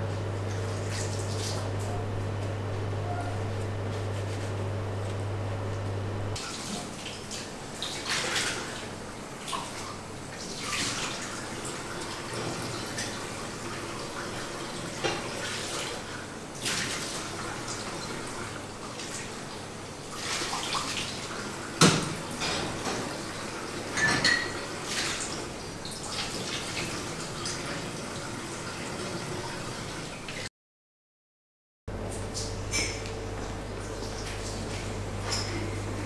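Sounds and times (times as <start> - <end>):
steady low hum: 0.0 - 6.4
water splashing in a sink: 6.4 - 19.5, 20.1 - 22.4, 23.2 - 30.4.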